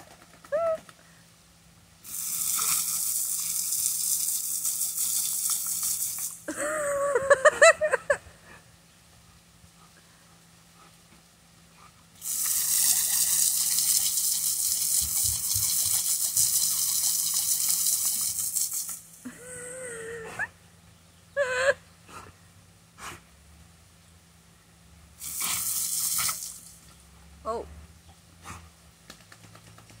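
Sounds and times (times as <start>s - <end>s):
water hissing from hose nozzle: 2.0s - 6.5s, 12.2s - 19.2s, 25.2s - 26.8s.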